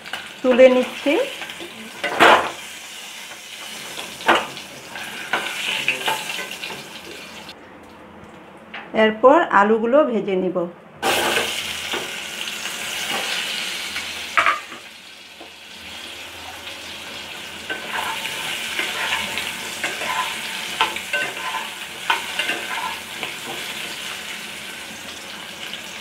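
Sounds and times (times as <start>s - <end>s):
potatoes sizzling in oil: 0.0s - 7.6s, 11.0s - 26.0s
spatula scraping pan: 17.6s - 24.2s.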